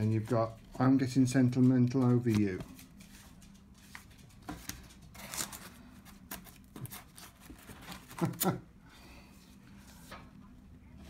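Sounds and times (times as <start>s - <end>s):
paper sleeves rustling: 0.0s - 8.5s.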